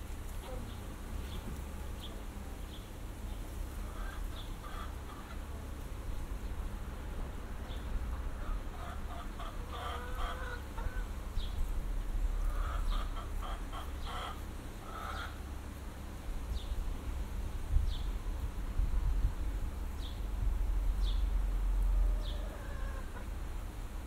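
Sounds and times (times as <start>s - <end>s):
chickens clucking: 3.8s - 5.5s, 8.1s - 11.5s, 12.4s - 15.4s, 21.9s - 23.4s.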